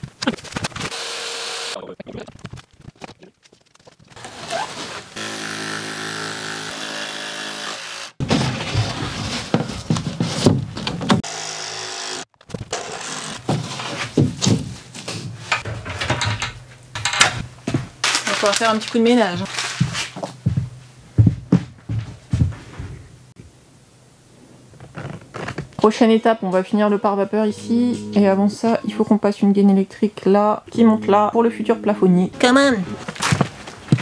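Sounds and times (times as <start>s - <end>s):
power tool motor running: 0.9s - 1.8s, 5.2s - 8.2s, 11.2s - 13.5s.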